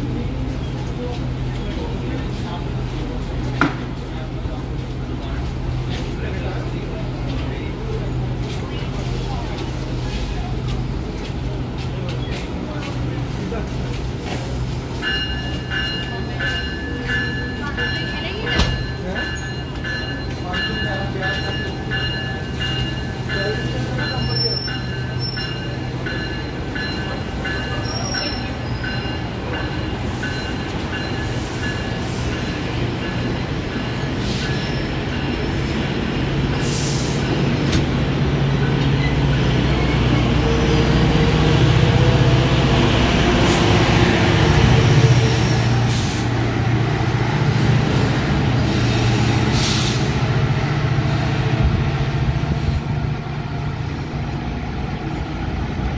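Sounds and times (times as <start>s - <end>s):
train cars rumbling on rails: 0.0s - 55.9s.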